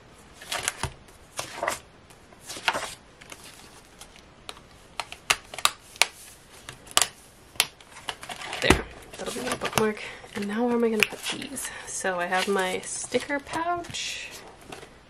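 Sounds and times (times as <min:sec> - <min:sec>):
paper pages flipping: 0:00.4 - 0:01.8, 0:02.4 - 0:07.2, 0:07.8 - 0:09.8.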